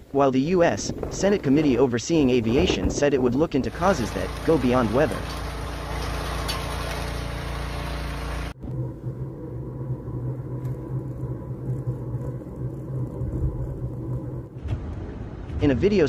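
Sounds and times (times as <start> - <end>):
snowblower engine running: 3.7 - 14.2
low rumble with thin whine: 6.8 - 16.0.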